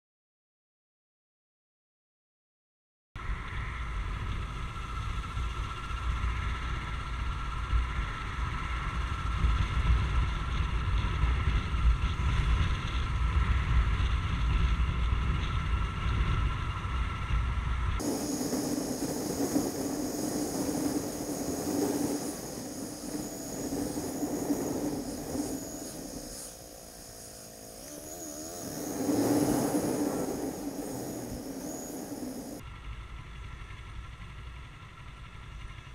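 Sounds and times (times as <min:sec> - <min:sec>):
wind rumble on microphone: 0:03.2 - 0:32.6
motorcycle engine: 0:18.0 - 0:32.6.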